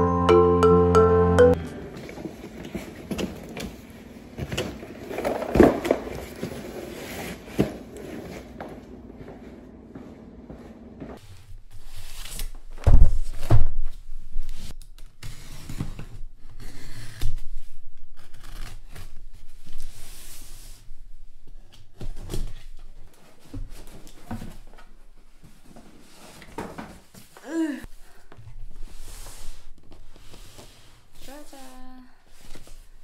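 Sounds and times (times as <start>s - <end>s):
cardboard scraping and rustling: 2.2s - 8.8s
boxes thumping on table: 4.5s - 6.4s.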